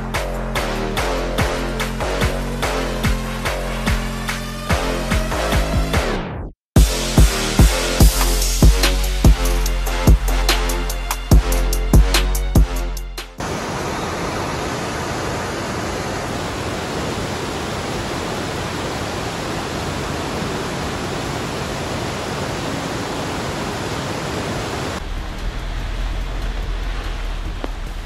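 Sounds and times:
waterfall rushing: 13.4s - 28.0s
deep rumble: 24.6s - 28.0s.

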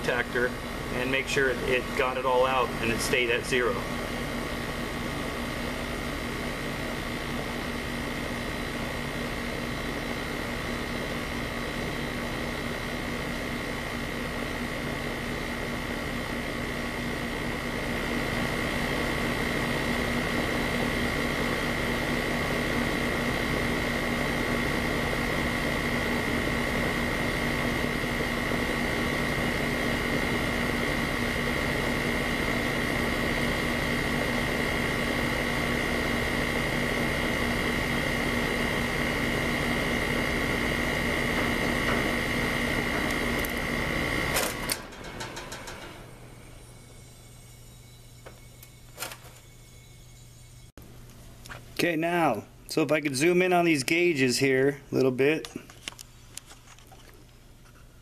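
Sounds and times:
air conditioner unit humming: 0.0s - 58.0s
contactor click: 41.3s - 46.2s.

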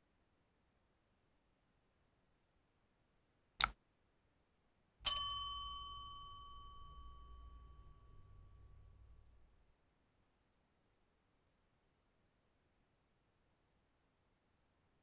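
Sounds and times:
notification bell ding: 5.1s - 8.8s.

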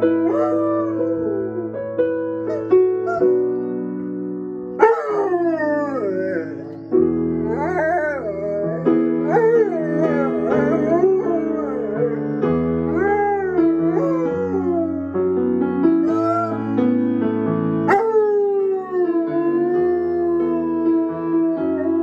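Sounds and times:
piano chords: 0.0s - 22.0s
dog howling: 0.2s - 1.7s, 2.5s - 3.4s, 4.8s - 6.7s, 7.4s - 12.3s, 12.9s - 15.0s, 16.0s - 16.6s, 17.9s - 22.0s.

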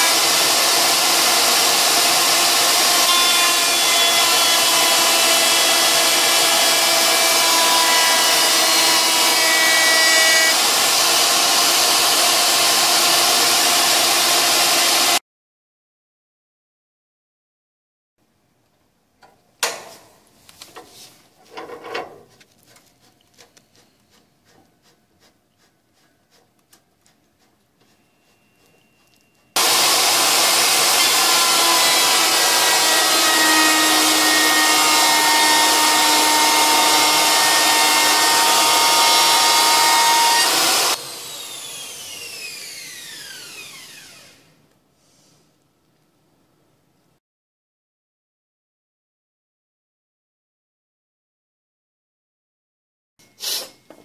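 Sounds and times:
router running loud: 0.0s - 15.2s, 29.6s - 44.5s.

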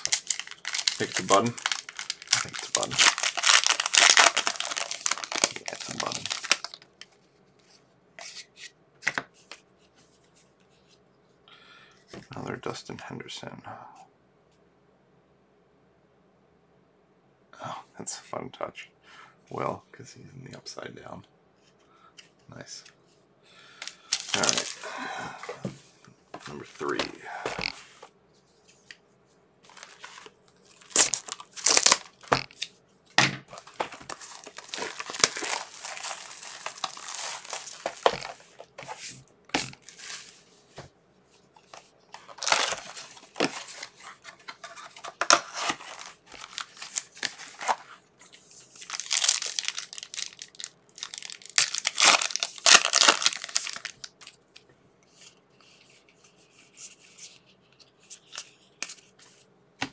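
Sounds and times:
plastic wrapping tearing and crinkling: 0.0s - 6.9s, 24.1s - 24.9s, 29.7s - 32.7s, 33.5s - 39.0s, 39.6s - 40.4s, 41.6s - 47.9s, 48.7s - 54.4s.

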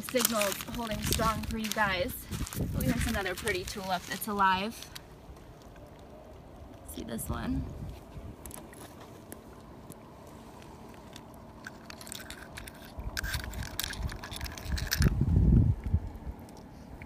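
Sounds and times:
seashells clicking together: 11.0s - 15.2s.

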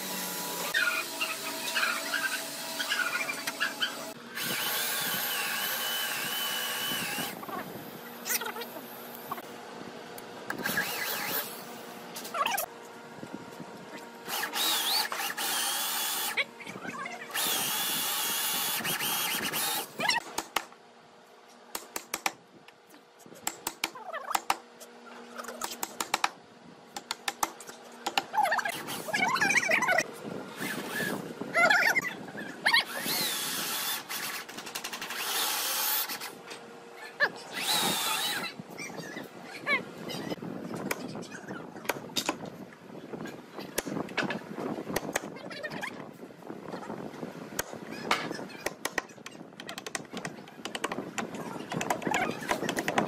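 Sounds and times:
electric drill whining: 0.0s - 7.5s, 14.3s - 16.4s, 17.3s - 20.0s, 32.8s - 34.4s, 35.0s - 36.2s, 37.5s - 38.5s.

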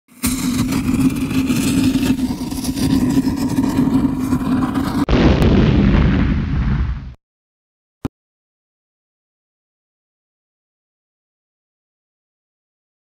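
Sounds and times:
loud steady drone: 0.1s - 5.5s
deep booming rumble: 0.3s - 7.2s.

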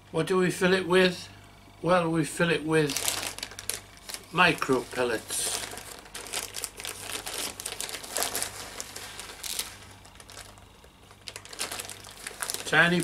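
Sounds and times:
plastic bag crinkling: 2.8s - 13.0s.

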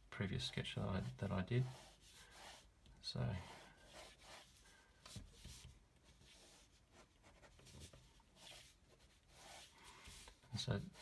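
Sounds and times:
pen scratching on paper: 1.6s - 2.7s.

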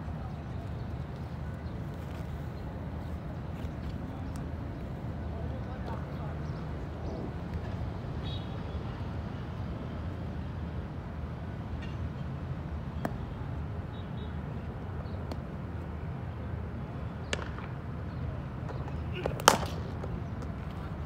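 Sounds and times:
cricket bat striking ball: 17.3s - 17.8s, 18.7s - 20.5s.

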